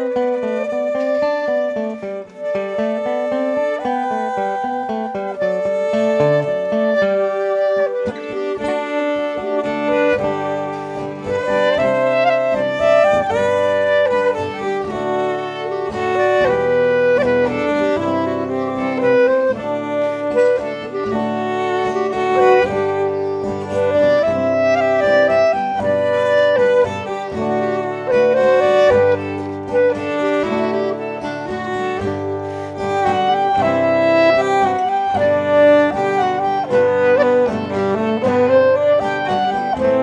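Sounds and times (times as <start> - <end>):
clarinet: 0.0 - 40.0
fiddle: 0.0 - 40.0
strummed acoustic guitar: 0.0 - 40.0.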